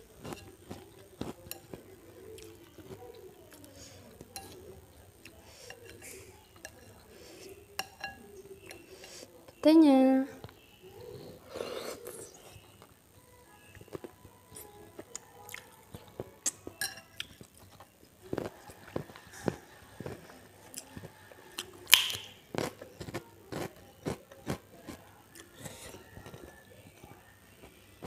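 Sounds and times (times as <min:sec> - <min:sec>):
crunchy chewing: 0:00.0 - 0:09.3, 0:13.7 - 0:28.0
mouth clicks: 0:21.9 - 0:23.2.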